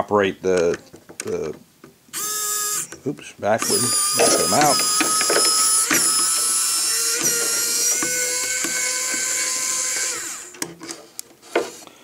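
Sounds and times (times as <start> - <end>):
power drill motor whine: 2.1 - 3.0, 3.6 - 10.6.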